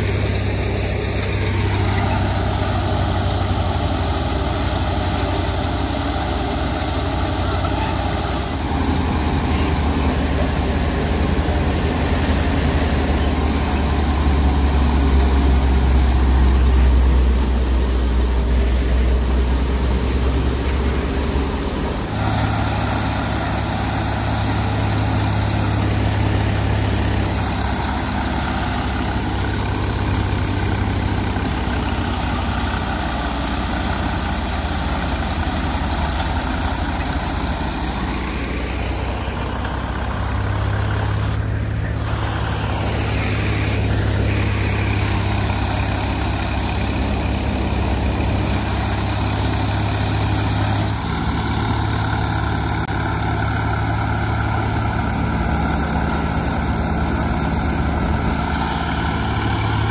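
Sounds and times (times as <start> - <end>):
thresher running: 0.0 - 59.9
tractor diesel engine under load: 0.0 - 59.9.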